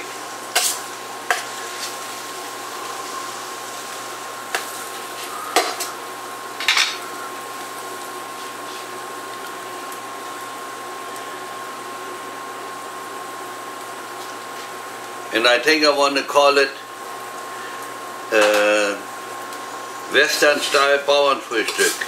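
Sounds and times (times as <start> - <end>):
pan hissing: 0.0 - 9.9.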